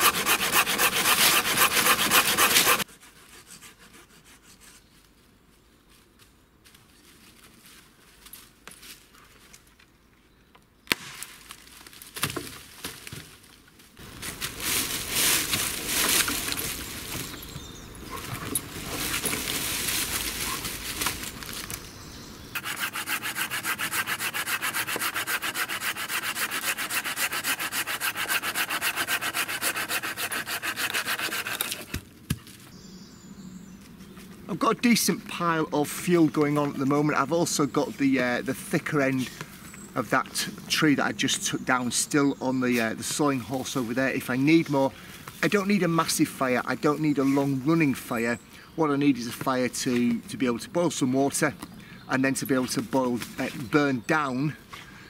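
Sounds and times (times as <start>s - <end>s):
hand saw cutting wood: 0.0s - 4.8s, 22.6s - 32.0s.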